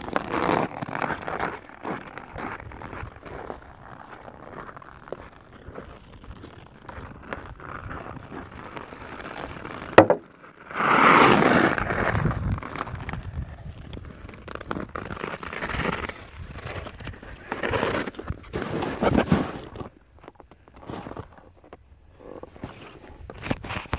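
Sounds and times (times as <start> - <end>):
skate blades scraping on ice: 0.0 - 20.0
sharp knock: 10.0 - 10.2.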